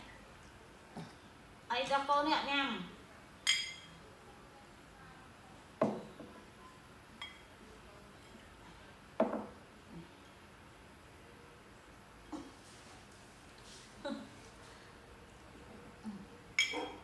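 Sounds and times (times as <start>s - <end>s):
spoon clinking on glass: 3.4s - 4.0s, 7.2s - 7.4s, 16.6s - 17.0s
dishes knocking on wooden table: 5.8s - 6.2s, 9.2s - 9.6s.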